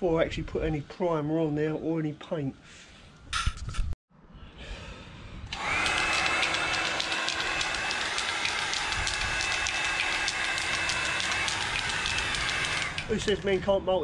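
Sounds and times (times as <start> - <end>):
heat gun fan whine: 5.4 - 13.6.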